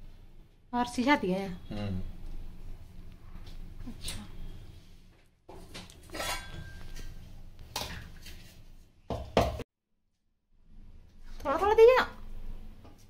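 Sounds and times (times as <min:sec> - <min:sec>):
steel spoon scraping a pot: 0:06.0 - 0:07.2.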